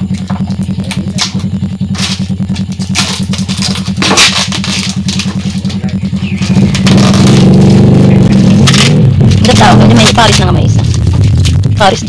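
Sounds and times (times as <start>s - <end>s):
engine running with low pulse: 0.0s - 12.0s
plastic wrapping crackling: 2.0s - 5.8s.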